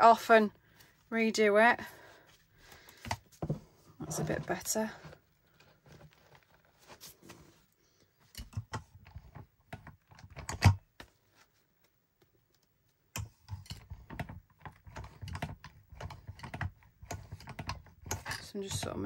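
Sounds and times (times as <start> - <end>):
wire binding machine clicks and knocks: 8.3 - 10.8, 13.2 - 19.0.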